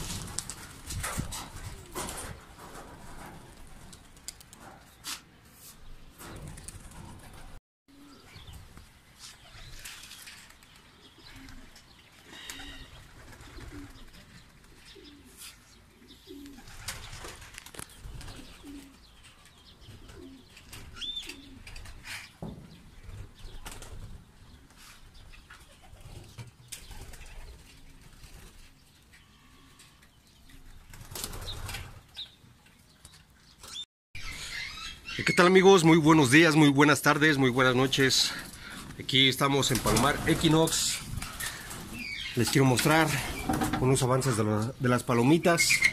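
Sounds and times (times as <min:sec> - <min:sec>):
pigeon wings flapping: 0:00.0 - 0:04.8, 0:06.2 - 0:07.6, 0:12.4 - 0:14.9, 0:16.4 - 0:18.9, 0:23.2 - 0:24.2, 0:30.8 - 0:32.0
pigeon cooing: 0:11.0 - 0:14.2, 0:18.3 - 0:19.0, 0:20.0 - 0:22.2.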